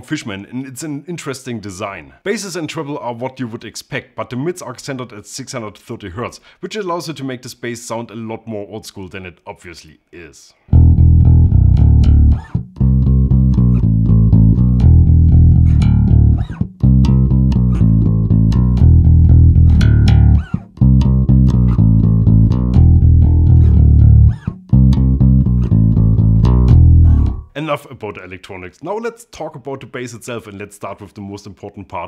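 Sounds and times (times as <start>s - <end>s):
electric bass riff: 10.7s - 27.6s.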